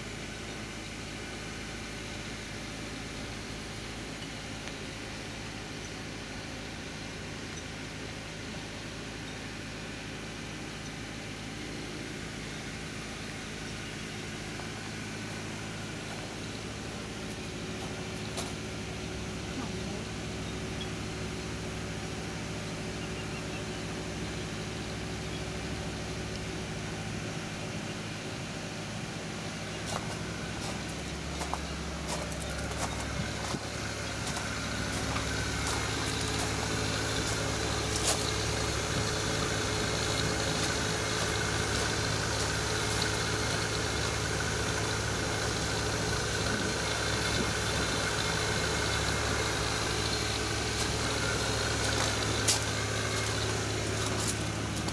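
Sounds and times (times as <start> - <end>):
engine idling: 0.0 - 54.9.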